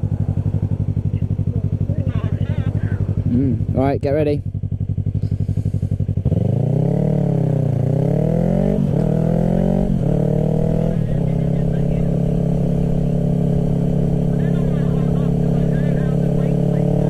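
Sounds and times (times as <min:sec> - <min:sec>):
motorcycle engine: 0:00.0 - 0:17.0.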